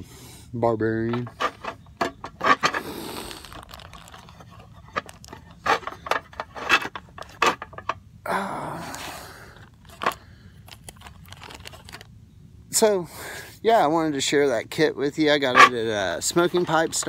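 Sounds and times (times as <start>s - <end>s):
sharp clicks and knocks: 1.0s - 2.8s
scraping rustle: 1.0s - 8.0s, 15.4s - 17.0s.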